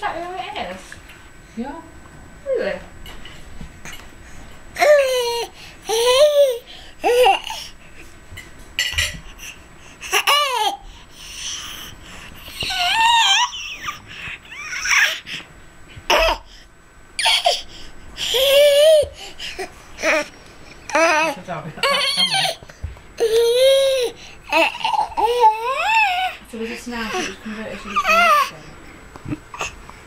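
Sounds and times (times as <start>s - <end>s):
baby babbling and squealing laughs: 12.5s - 15.2s, 17.2s - 20.3s, 27.9s - 28.5s.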